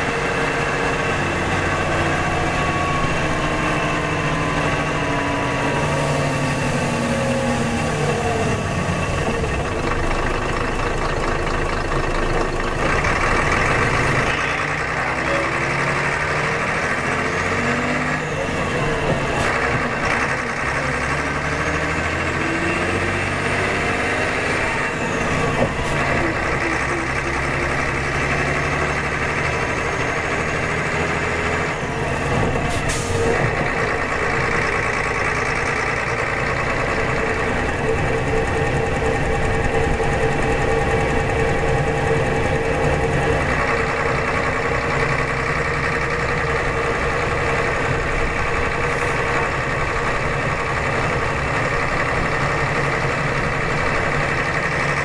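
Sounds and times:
diesel coach engine running: 0:00.0 - 0:55.0
road noise: 0:00.0 - 0:55.0.

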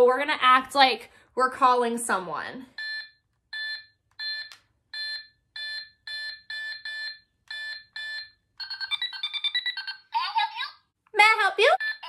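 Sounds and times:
toy telephone beeps: 0:02.8 - 0:10.6, 0:11.8 - 0:12.0.

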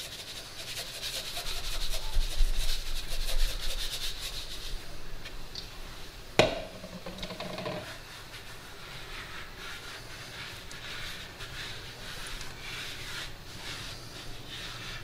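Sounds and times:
hands rubbing sugar on dough: 0:00.0 - 0:04.9, 0:07.8 - 0:15.0
sharp knock: 0:06.4 - 0:07.6.

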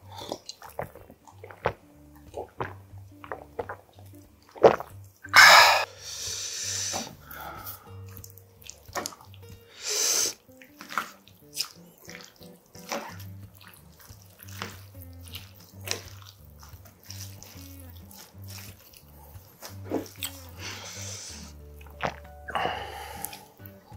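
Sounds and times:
soft background music: 0:00.0 - 0:23.9
chopsticks tossing wet noodles: 0:05.5 - 0:23.9.

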